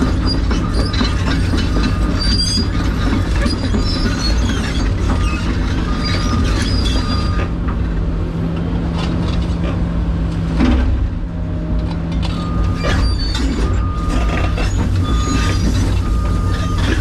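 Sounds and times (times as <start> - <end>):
metallic squeals and clanks: 0.0 - 7.6, 12.2 - 17.0
diesel engine running: 0.0 - 17.0.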